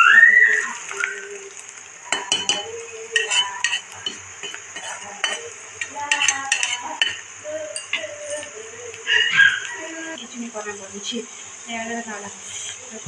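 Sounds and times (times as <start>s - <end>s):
vegetables sizzling in oil: 0.0s - 13.0s
metal ladle scraping a pan: 2.2s - 8.6s.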